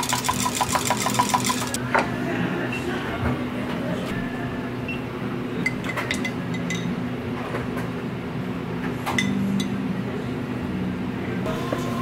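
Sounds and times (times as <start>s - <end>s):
metal spoon clinking on glass: 0.0s - 1.8s, 5.8s - 6.9s.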